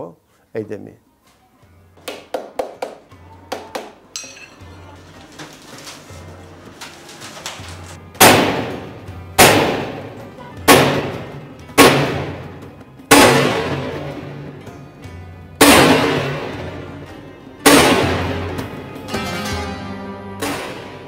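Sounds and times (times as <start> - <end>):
hammer striking sheet metal: 8.2 - 10.1, 10.7 - 14.3, 15.6 - 16.8, 17.6 - 18.8, 20.4 - 21.0.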